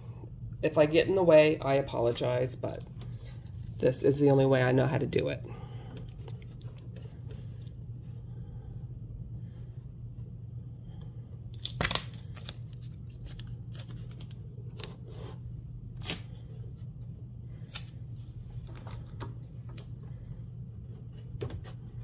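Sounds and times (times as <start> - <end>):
steady low hum: 0.0 - 22.0
masking tape tearing: 11.6 - 15.0.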